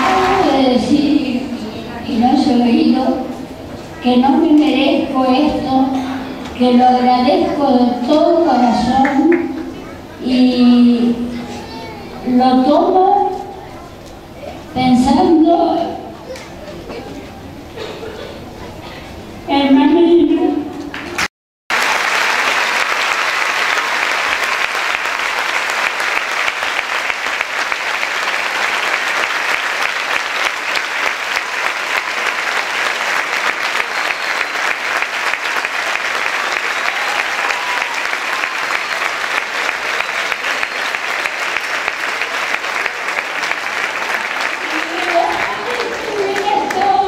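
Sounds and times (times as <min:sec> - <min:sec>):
audience applauding: 0:00.0 - 0:00.9, 0:20.9 - 0:47.0.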